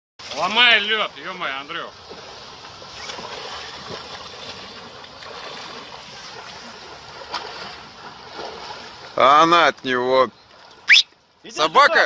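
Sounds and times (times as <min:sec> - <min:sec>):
person swimming splashing: 0:01.9 - 0:09.2.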